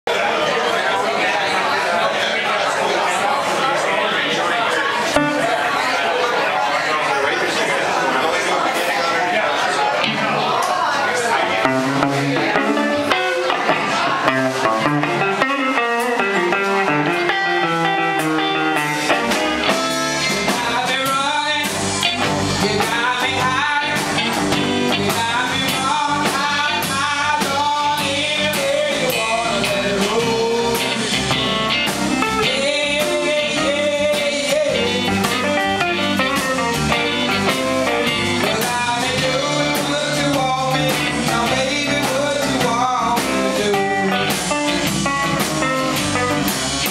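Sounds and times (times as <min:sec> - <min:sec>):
drums: 0:03.4 - 0:06.9, 0:08.3 - 0:46.9
bass guitar: 0:05.1 - 0:06.0, 0:09.9 - 0:10.7, 0:11.4 - 0:46.9
electric guitars: 0:05.1 - 0:06.0, 0:10.0 - 0:46.9.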